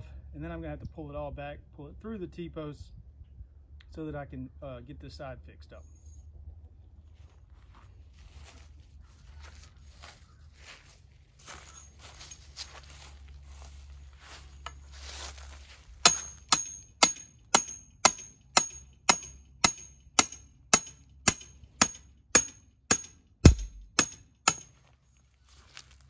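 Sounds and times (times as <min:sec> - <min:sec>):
hammer striking metal pipe: 0:16.0 - 0:24.8.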